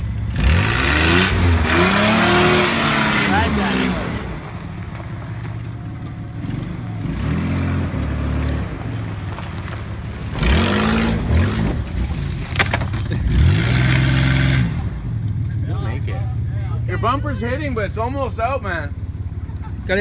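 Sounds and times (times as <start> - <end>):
truck engine revving hard: 0.0 - 5.2, 6.3 - 15.2.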